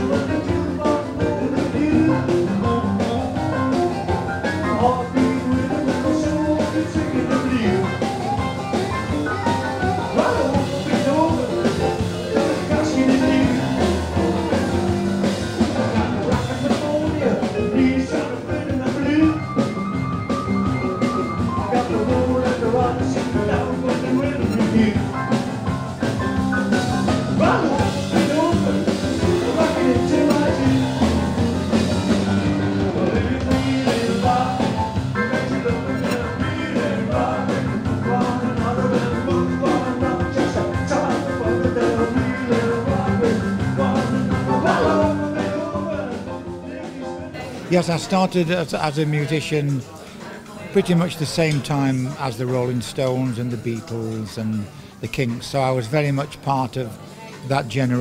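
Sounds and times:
electric guitar: 0.0 - 47.7
drum kit beat: 0.0 - 49.7.

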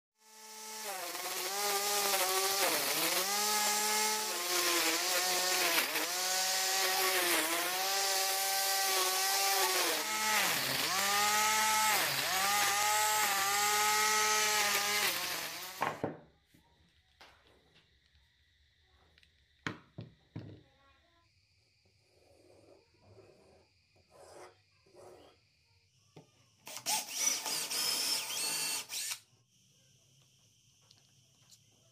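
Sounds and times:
grinder motor high whine: 0.2 - 16.0.

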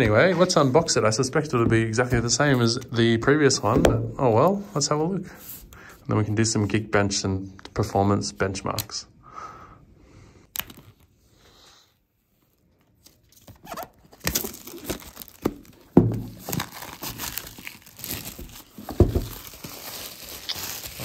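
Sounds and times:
plastic wrap crackling: 13.7 - 21.0.

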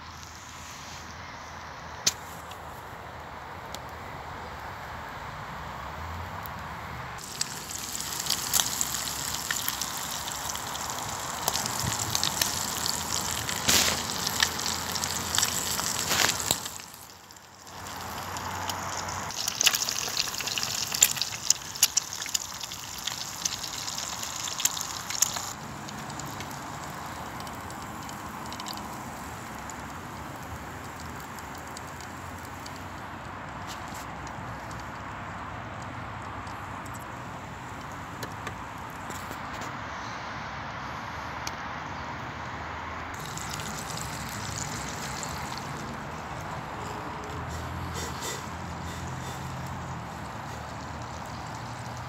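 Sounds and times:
eggs sizzling in hot fat: 7.2 - 32.8, 43.2 - 47.0, 49.3 - 52.0
spitting fat popping: 11.3 - 29.1, 43.2 - 52.0.

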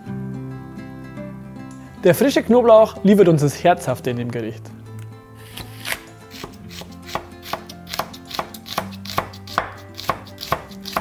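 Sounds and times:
knife chopping on wooden board: 5.5 - 11.0.

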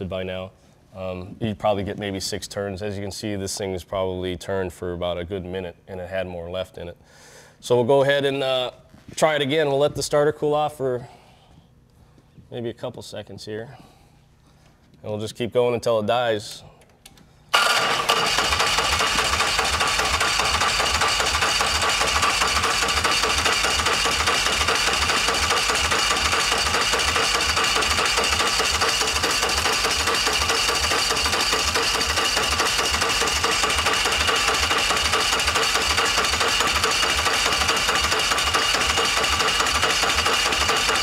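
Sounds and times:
starter motor cranking engine: 17.5 - 41.0.

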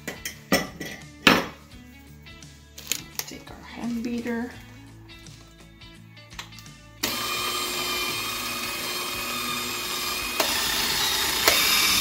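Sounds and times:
electric hand mixer running: 7.0 - 12.0.

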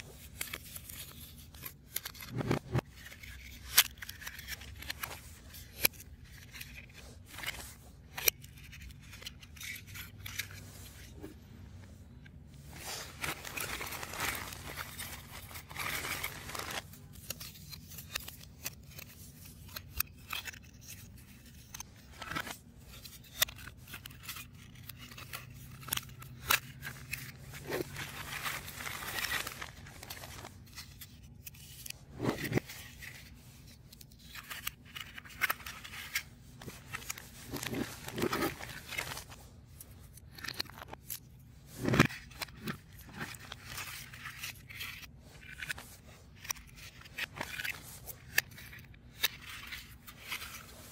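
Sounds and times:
puzzle pieces clicking and scraping: 13.3 - 39.3.

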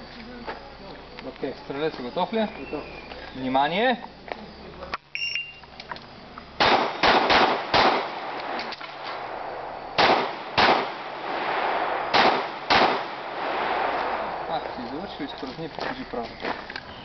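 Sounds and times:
pistol shots: 6.6 - 15.3.

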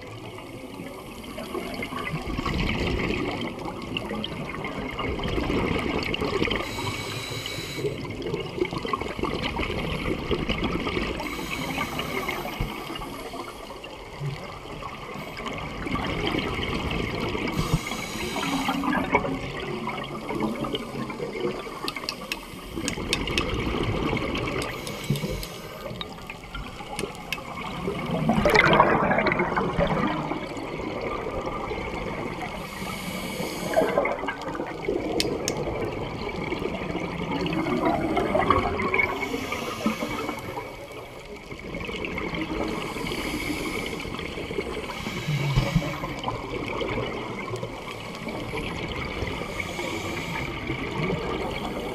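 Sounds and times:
bubbling of exhaled air: 1.3 - 51.9
scuba regulator hiss: 6.6 - 8.1, 11.2 - 13.8, 17.5 - 19.0, 20.8 - 23.3, 24.7 - 26.0, 32.6 - 34.0, 39.1 - 40.9, 42.8 - 44.2, 44.8 - 46.2, 49.4 - 50.7.

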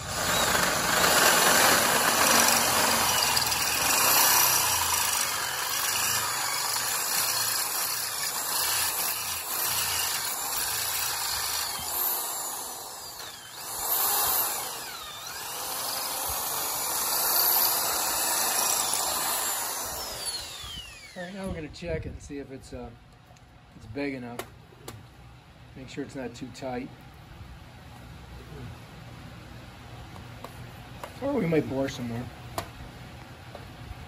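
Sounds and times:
electric drill boring steel: 0.0 - 21.4.

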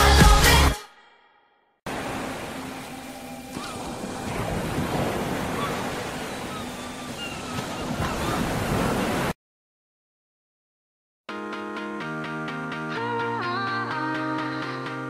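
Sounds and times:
sea water rushing along a hull: 1.9 - 9.4.

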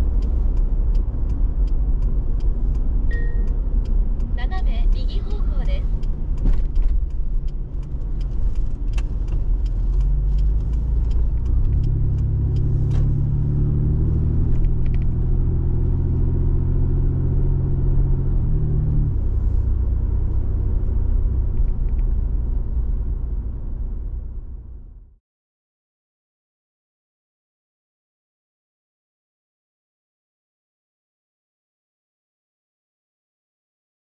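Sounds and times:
car engine and road noise: 0.0 - 25.2.

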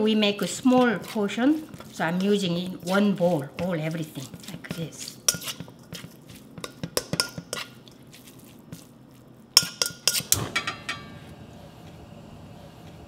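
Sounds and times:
wooden spoon scraping metal bowl: 0.2 - 8.8.

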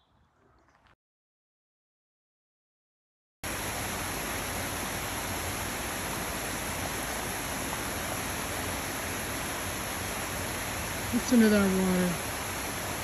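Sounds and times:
stream flowing over stones: 3.5 - 13.0.

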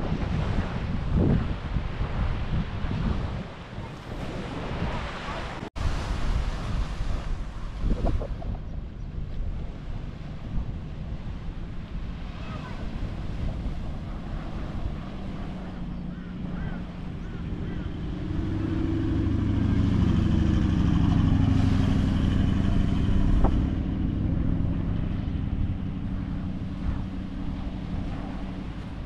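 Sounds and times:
surf: 0.0 - 29.0
wind: 0.0 - 29.0
vehicle engine passing by: 11.6 - 29.0.

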